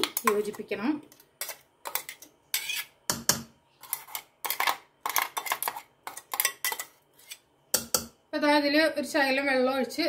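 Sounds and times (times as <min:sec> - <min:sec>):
spoon scraping a grinder jar: 0:01.4 - 0:03.0, 0:03.8 - 0:07.4.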